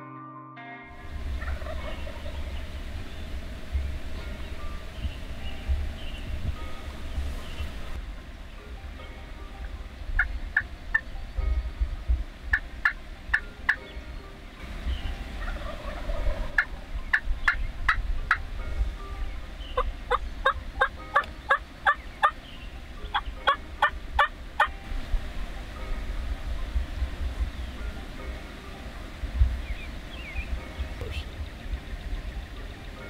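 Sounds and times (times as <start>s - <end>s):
wild turkey yelping: 1.3s - 2.8s, 12.5s - 13.9s, 14.9s - 18.4s, 19.6s - 24.8s.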